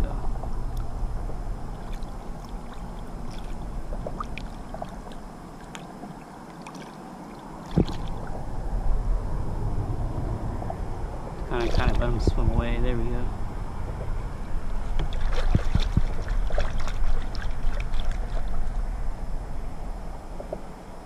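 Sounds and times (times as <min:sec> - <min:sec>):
wind rumble on microphone: 0:00.0 - 0:06.6, 0:07.2 - 0:21.0
water splashing against kayak: 0:01.7 - 0:08.5, 0:11.4 - 0:12.2, 0:14.8 - 0:19.0.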